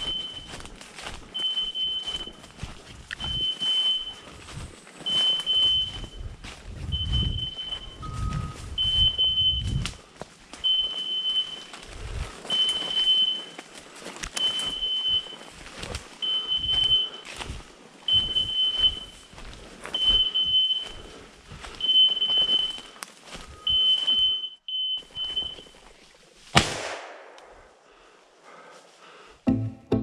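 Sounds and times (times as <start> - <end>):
twigs cracking: 9.8 - 16.2, 22.3 - 23.5.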